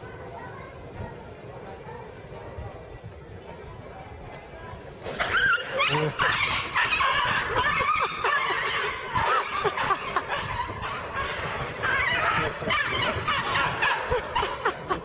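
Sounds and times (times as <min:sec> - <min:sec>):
human laughter: 0:05.5 - 0:15.0.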